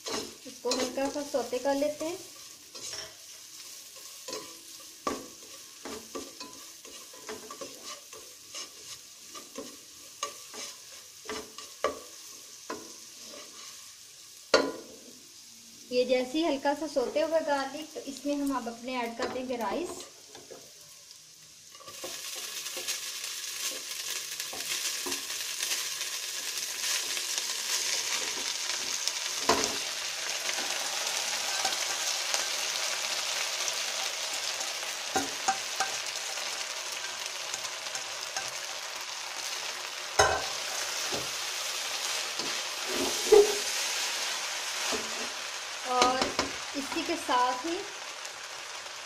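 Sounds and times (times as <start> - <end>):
rice sizzling in pot: 0.0 - 49.0.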